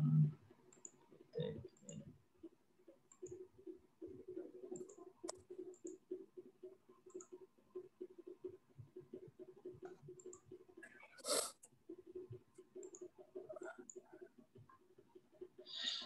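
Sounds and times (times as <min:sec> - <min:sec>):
computer mouse clicks: 0:00.7 - 0:01.0, 0:03.1 - 0:03.4, 0:04.1 - 0:06.0, 0:07.0 - 0:07.4, 0:09.8 - 0:11.7, 0:12.6 - 0:14.3.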